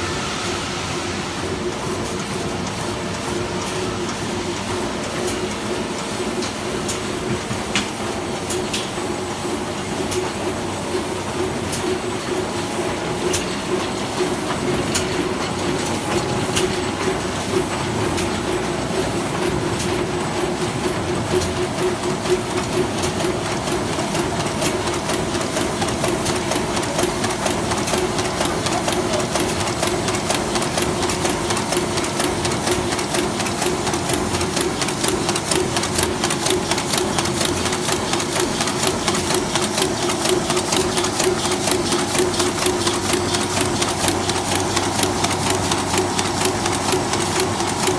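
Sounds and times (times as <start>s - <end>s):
printing press running: 0.0s - 47.9s
fast clatter of clicks: 22.5s - 47.9s.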